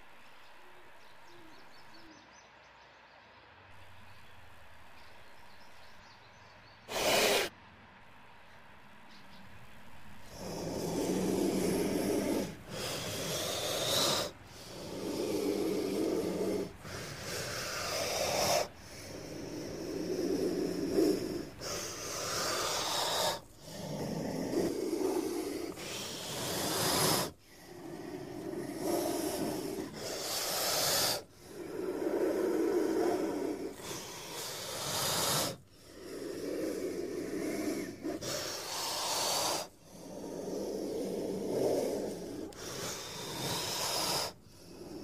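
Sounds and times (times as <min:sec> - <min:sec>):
snake hissing: 0:06.9 - 0:07.5, 0:10.2 - 0:45.0.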